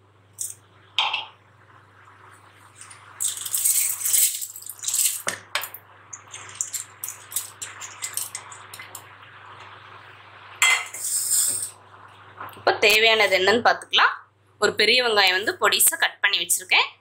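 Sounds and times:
wet rice pouring: 0:02.8 - 0:05.3, 0:06.2 - 0:09.0.

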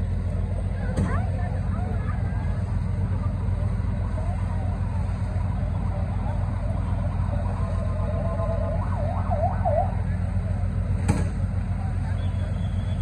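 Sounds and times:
fire engines rumbling: 0:00.0 - 0:13.0
fire engine siren yelping: 0:03.1 - 0:10.9.

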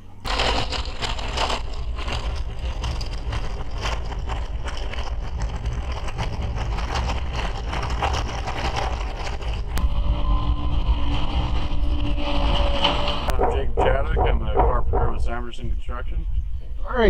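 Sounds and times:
wind buffeting microphone: 0:04.0 - 0:16.8.

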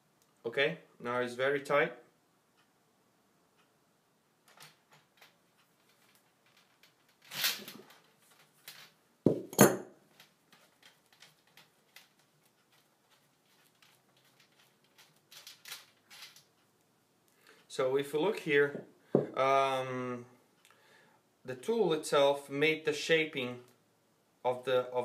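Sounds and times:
sharp knocks: 0:09.3 - 0:10.0, 0:18.7 - 0:19.4.

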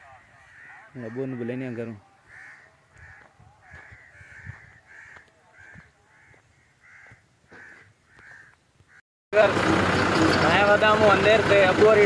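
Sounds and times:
bird calling: 0:00.0 - 0:09.0.

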